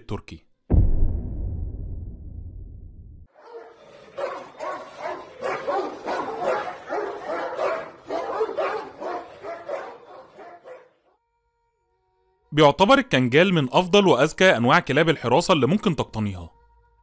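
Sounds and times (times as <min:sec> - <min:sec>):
dog barking: 0:03.3 - 0:11.1.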